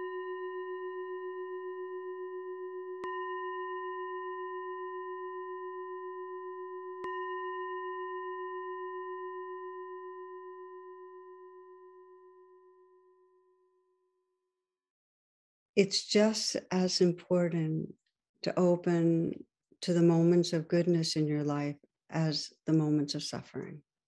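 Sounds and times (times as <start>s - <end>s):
singing bowl ringing: 0.0s - 14.0s.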